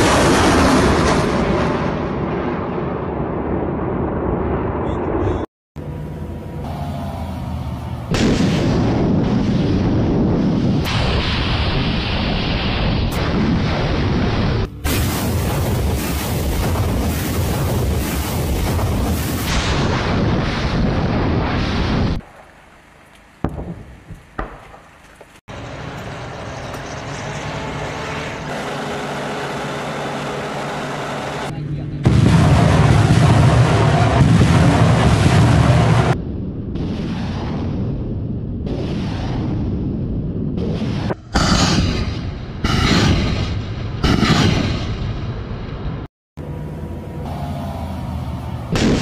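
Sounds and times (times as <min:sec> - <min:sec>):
sharp cracks of rockets: 0:00.0 - 0:03.8, 0:08.1 - 0:22.6, 0:23.3 - 0:25.4, 0:32.0 - 0:45.6, 0:48.7 - 0:49.0
low rumble: 0:00.0 - 0:24.8, 0:31.4 - 0:49.0
truck engines humming: 0:05.8 - 0:08.8, 0:14.6 - 0:15.6, 0:22.2 - 0:32.2, 0:46.4 - 0:49.0
rocket launch rush: 0:08.1 - 0:22.3, 0:38.7 - 0:45.2
distant booms: 0:08.1 - 0:22.5, 0:23.4 - 0:25.3, 0:32.0 - 0:46.1, 0:48.7 - 0:49.0.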